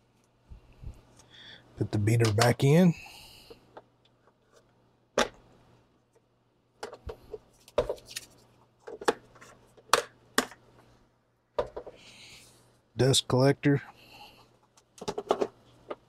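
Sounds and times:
plastic clicks and knocks: 0:11.6 - 0:12.0, 0:14.9 - 0:16.0.

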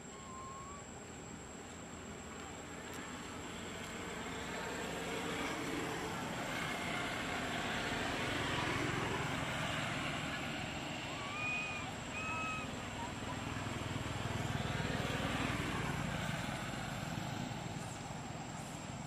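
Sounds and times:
short high chirping calls: 0:00.0 - 0:00.9, 0:11.2 - 0:12.7
distant engine rumble: 0:00.0 - 0:19.0.

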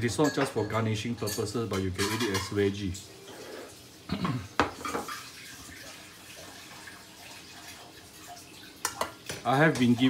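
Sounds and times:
water boiling in a pot: 0:02.2 - 0:10.0.

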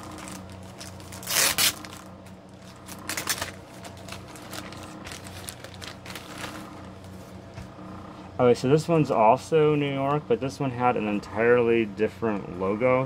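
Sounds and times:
clothes and packaging rustling: 0:00.0 - 0:07.6
steady low hum: 0:00.0 - 0:13.0.

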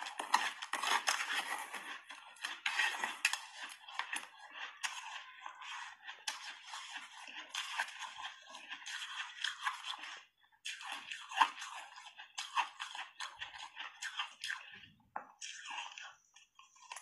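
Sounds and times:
crunching and chewing shaved ice: 0:00.0 - 0:17.0.

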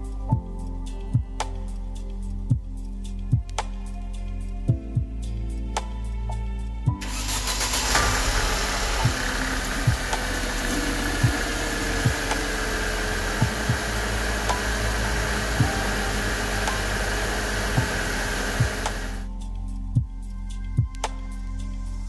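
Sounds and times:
car engine running: 0:07.0 - 0:19.3
fluid rushing hiss: 0:07.0 - 0:19.3
soft low thumps: 0:08.5 - 0:19.1.

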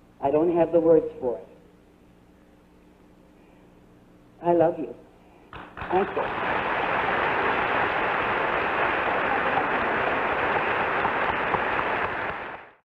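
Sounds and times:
audience applauding: 0:05.6 - 0:12.8.

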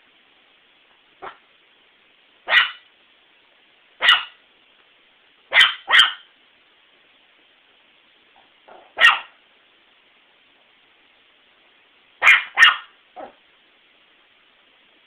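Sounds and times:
small dog barking: 0:01.2 - 0:01.4, 0:02.4 - 0:02.9, 0:04.0 - 0:04.4, 0:05.5 - 0:06.3, 0:08.7 - 0:09.4, 0:12.2 - 0:13.4.

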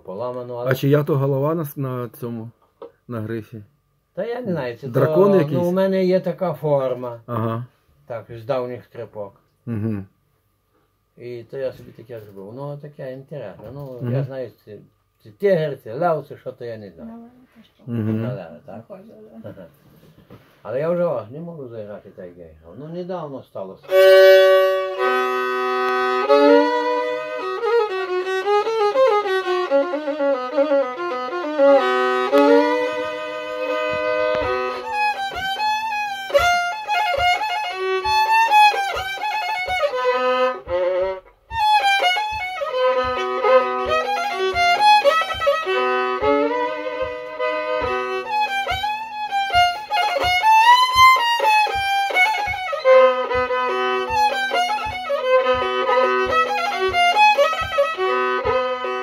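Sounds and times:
solo violin melody: 0:04.8 - 0:05.9, 0:23.8 - 0:59.0
low taps keeping time: 0:23.9 - 0:59.0.

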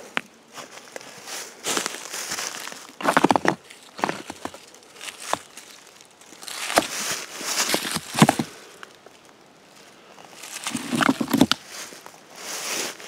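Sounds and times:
dry leaves rustling: 0:00.5 - 0:13.0
loose rocks scraping: 0:01.7 - 0:09.3, 0:09.9 - 0:12.0
stones knocking: 0:03.0 - 0:05.7, 0:06.4 - 0:07.0, 0:07.6 - 0:08.6, 0:10.4 - 0:11.6.

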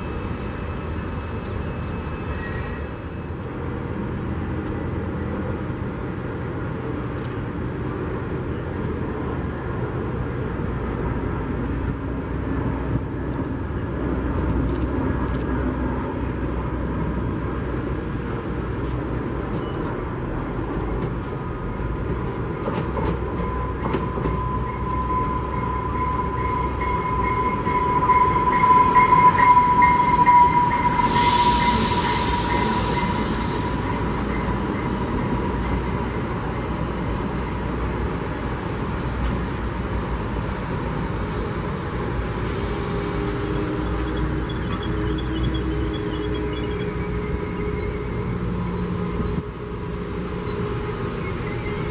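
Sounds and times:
high whine of train: 0:00.0 - 0:51.9
wheel and rail noise: 0:00.0 - 0:51.9
diesel locomotive idling: 0:21.9 - 0:39.9.

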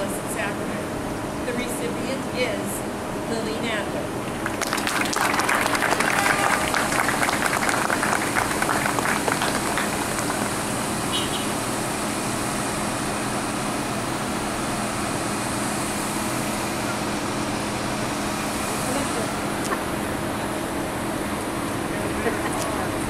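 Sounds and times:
car engines idling: 0:00.0 - 0:23.0
people clapping: 0:04.3 - 0:10.9.

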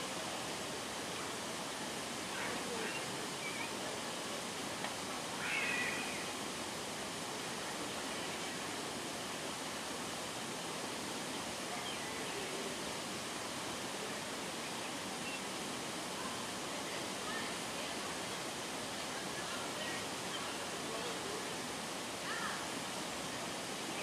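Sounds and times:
outdoor background hiss: 0:00.0 - 0:24.0.

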